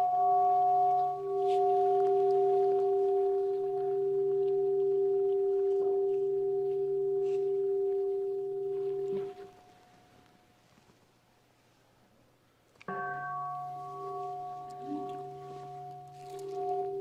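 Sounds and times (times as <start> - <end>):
bowl bell ringing: 0.0 - 10.0, 12.9 - 17.0.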